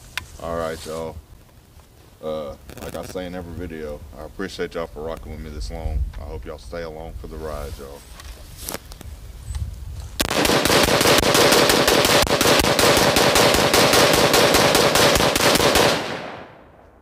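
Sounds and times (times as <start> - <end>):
rapid rifle shots: 10.2 - 16.6.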